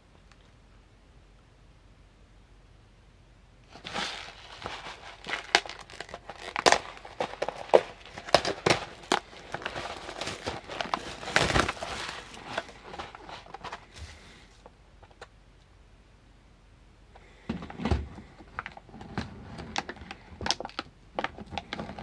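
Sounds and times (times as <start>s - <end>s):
plastic wrapper crinkling: 3.7s - 14.2s, 18.5s - 22.0s.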